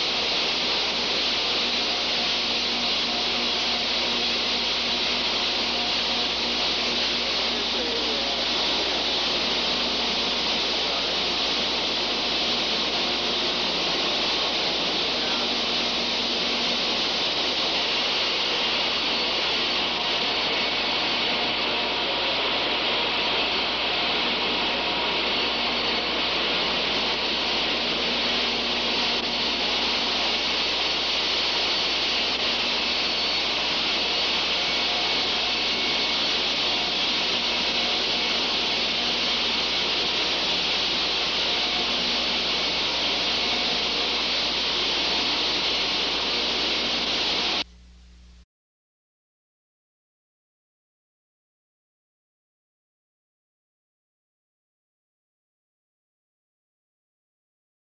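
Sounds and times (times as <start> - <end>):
water spraying from a hose: 0.0 - 47.6.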